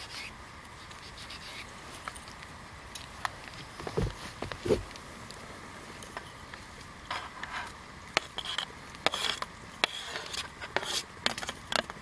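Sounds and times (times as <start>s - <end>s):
scraping on cutting board: 3.9s - 4.9s, 7.1s - 11.6s.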